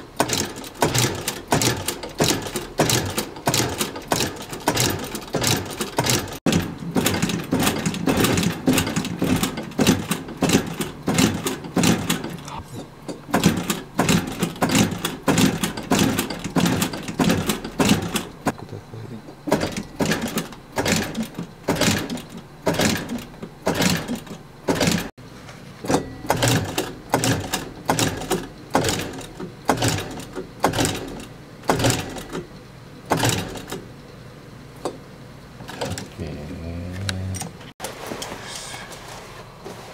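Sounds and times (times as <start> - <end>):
sewing machine stitching: 0.0 - 12.5, 13.3 - 18.5, 19.5 - 25.1, 25.9 - 32.4, 33.1 - 33.9.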